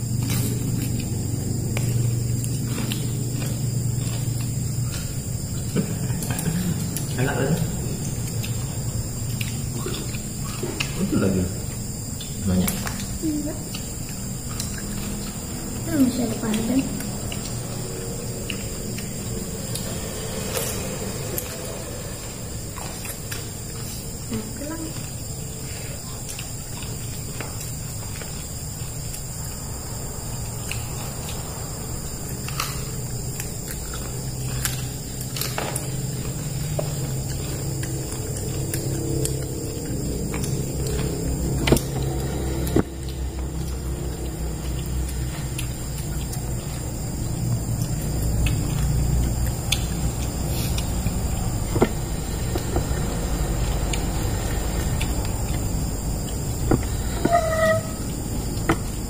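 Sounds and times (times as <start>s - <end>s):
crickets chirping: 0.0s - 59.0s
low steady hum: 0.0s - 59.0s
low background rumble: 12.8s - 59.0s.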